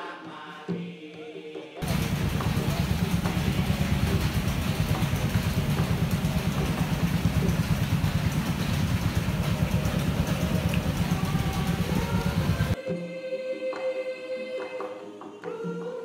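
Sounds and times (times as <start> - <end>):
motorboat engine chugging: 1.8 - 12.8
wind and water hiss: 1.8 - 12.8.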